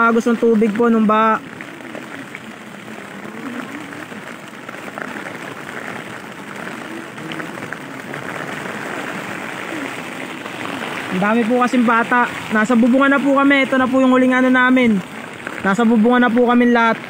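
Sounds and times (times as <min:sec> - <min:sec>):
heavy rain on plastic tarpaulin: 0:00.0 - 0:17.0.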